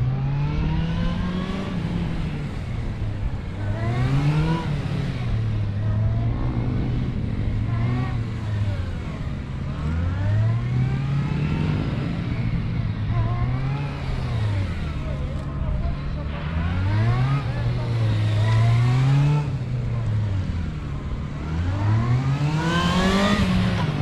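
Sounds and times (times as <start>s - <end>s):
motorcycle engine revving: 0.0s - 24.0s.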